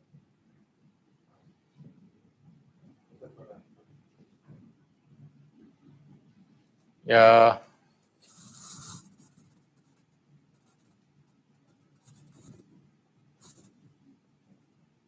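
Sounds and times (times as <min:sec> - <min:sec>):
faint scratchy rustling: 0:07.9 - 0:14.0.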